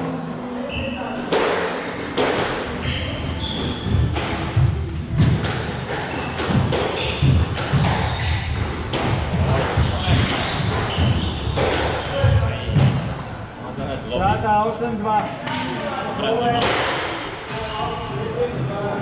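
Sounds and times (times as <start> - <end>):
shoes squeaking on court: 0.7 - 13.4
thudding footsteps: 3.7 - 5.5.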